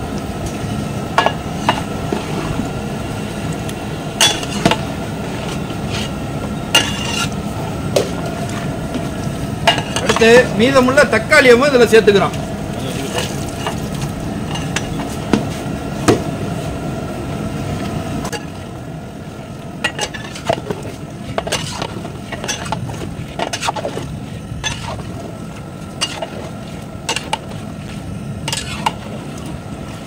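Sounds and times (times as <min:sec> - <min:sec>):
steady low rumble: 0:00.0 - 0:30.0
metal ladle scraping a pot: 0:04.2 - 0:04.8, 0:06.8 - 0:07.4, 0:19.9 - 0:25.1, 0:28.5 - 0:29.0.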